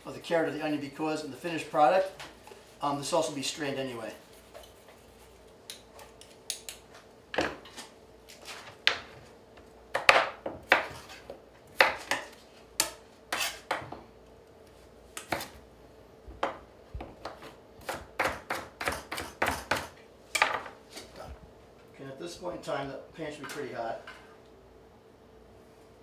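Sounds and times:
knife chopping on plastic board: 0:09.9 - 0:11.2, 0:11.8 - 0:13.9, 0:16.4 - 0:20.7.

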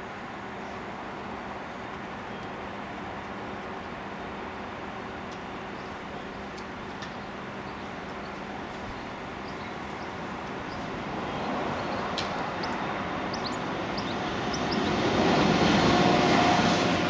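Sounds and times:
vehicle passing: 0:08.4 - 0:17.0.

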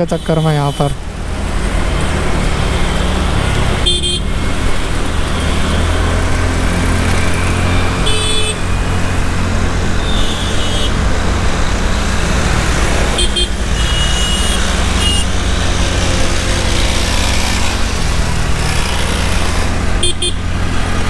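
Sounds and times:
horn beeps: 0:10.0 - 0:11.0, 0:13.2 - 0:15.4.

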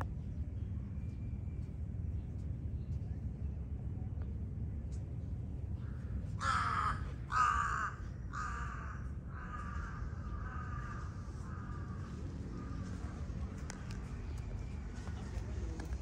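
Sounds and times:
crow cawing: 0:06.4 - 0:13.0.

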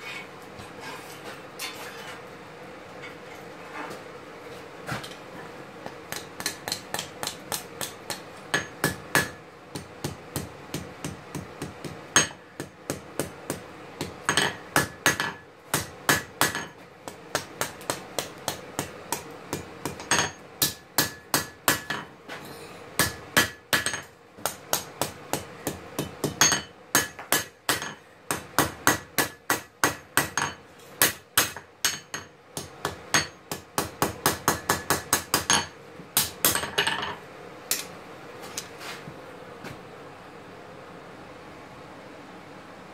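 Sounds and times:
hammer striking steel on anvil: 0:06.1 - 0:22.1, 0:23.0 - 0:37.9.

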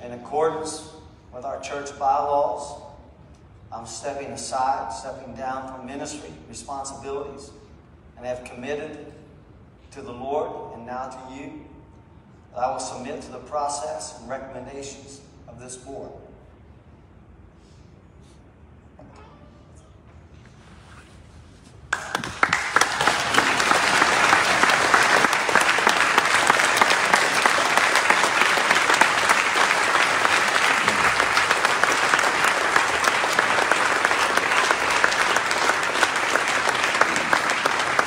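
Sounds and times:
congregation applauding: 0:21.9 - 0:38.0.

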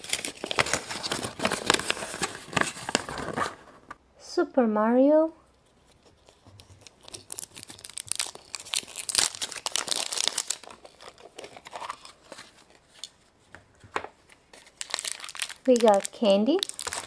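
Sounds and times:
wrapper tearing and crinkling: 0:00.0 - 0:03.8, 0:05.8 - 0:13.1, 0:14.5 - 0:17.0.

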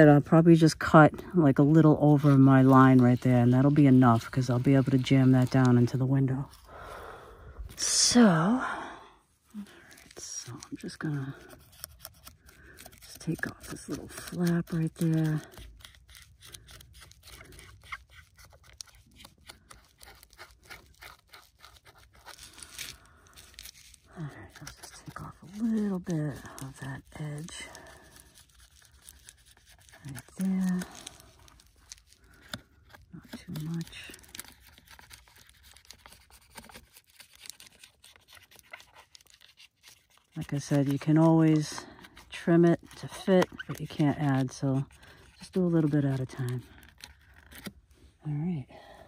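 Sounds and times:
foil insulation crinkling: 0:09.5 - 0:47.8.

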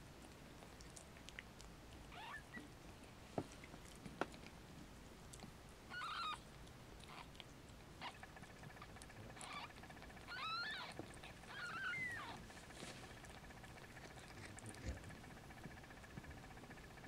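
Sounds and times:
kittens mewing: 0:02.1 - 0:02.7, 0:05.9 - 0:06.4, 0:08.0 - 0:15.1.

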